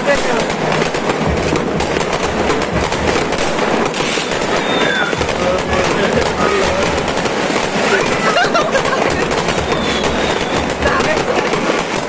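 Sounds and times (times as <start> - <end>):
fireworks bursting and crackling: 0.0 - 12.0
firework whistling glides: 3.8 - 11.4.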